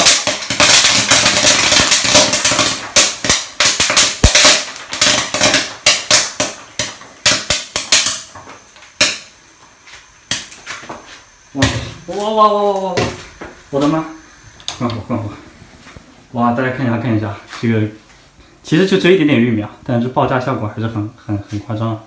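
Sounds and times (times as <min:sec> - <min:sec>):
popcorn landing on stovetop: 0:00.0 - 0:13.9
popcorn popping: 0:00.0 - 0:15.3
oil sizzling: 0:00.0 - 0:21.8.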